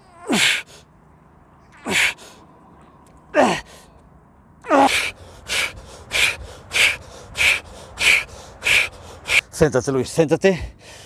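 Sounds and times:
man exhaling forcefully with groans: 1.8 - 2.4, 3.4 - 3.8, 4.7 - 9.5.

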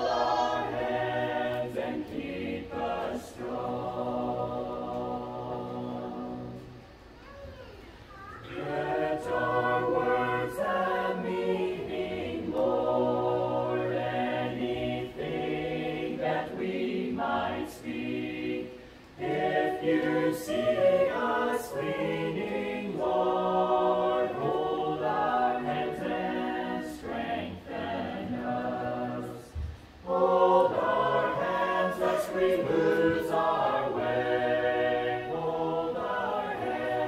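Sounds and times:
group singing a cappella: 0.0 - 7.0, 8.4 - 37.0.

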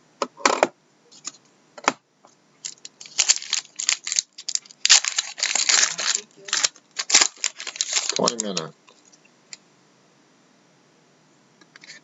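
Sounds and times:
foil wrapper tearing: 2.6 - 8.7.

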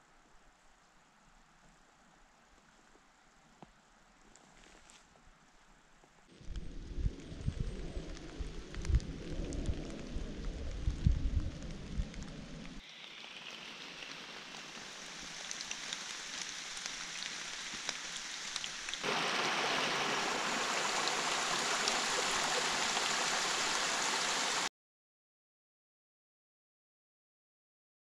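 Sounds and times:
rain hissing: 6.3 - 24.7
small water drips: 6.5 - 24.7
stream running over rocks: 12.8 - 24.7.

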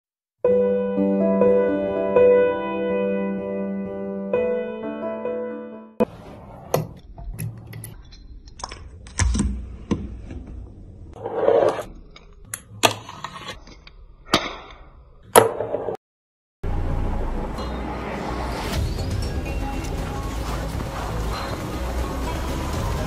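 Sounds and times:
small wheels scraping and rolling: 11.2 - 12.0.

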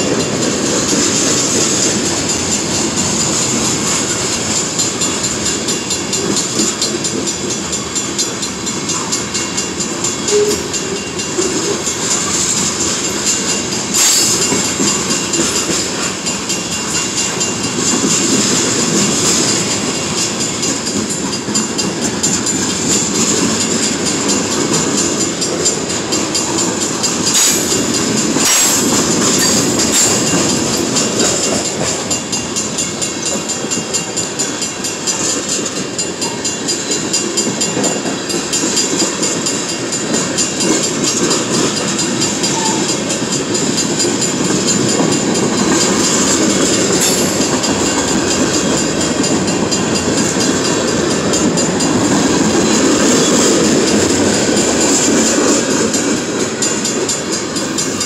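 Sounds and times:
freight train wheels rumbling: 0.0 - 58.0
high hiss from train wheels: 0.0 - 58.0
sharp metal clanks: 10.2 - 17.7, 27.2 - 32.6.

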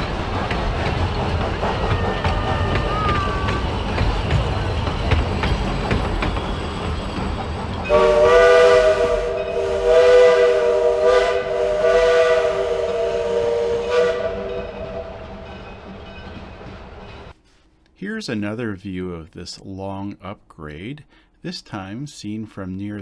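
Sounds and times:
train rumble and clatter: 0.0 - 17.4
steam whistle blast: 7.9 - 15.3.

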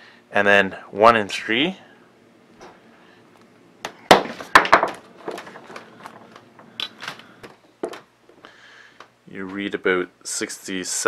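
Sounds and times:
multimeter leads clicking and knocking: 3.8 - 8.1.

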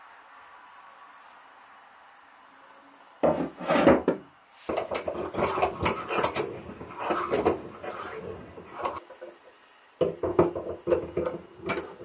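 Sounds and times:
vise knocking and scraping on wood: 3.2 - 9.4, 10.0 - 12.0.

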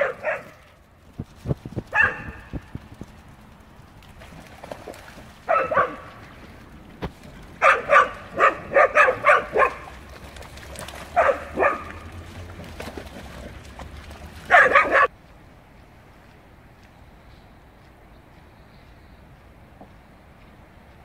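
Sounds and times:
dog barking: 0.0 - 0.7, 1.9 - 2.5, 5.5 - 6.2, 7.6 - 9.9, 11.1 - 12.1, 14.5 - 15.1.

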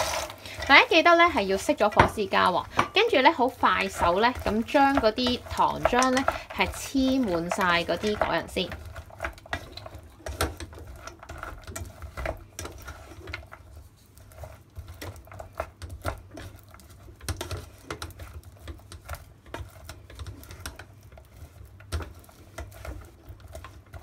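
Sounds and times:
wooden spatula scraping pan: 0.0 - 24.0
nuts clicking against pan: 0.4 - 13.5.

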